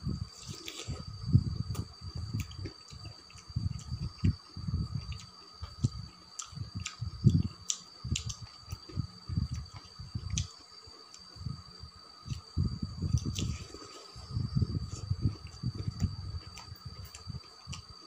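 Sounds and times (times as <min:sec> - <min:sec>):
insect chirring: 0:00.0 - 0:18.0
person chewing food: 0:00.4 - 0:01.1, 0:01.7 - 0:11.2.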